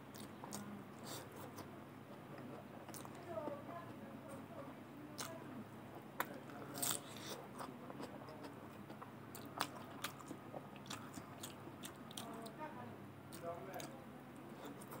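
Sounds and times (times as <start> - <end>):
faint low hum: 0.0 - 15.0
person chewing food: 0.1 - 3.2, 6.0 - 12.5, 13.3 - 15.0.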